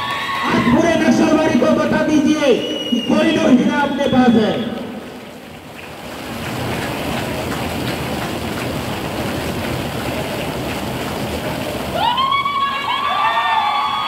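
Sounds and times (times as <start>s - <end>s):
audience clapping: 0.0s - 3.3s, 4.8s - 14.0s
people shouting and whooping: 0.0s - 3.5s, 12.0s - 14.0s.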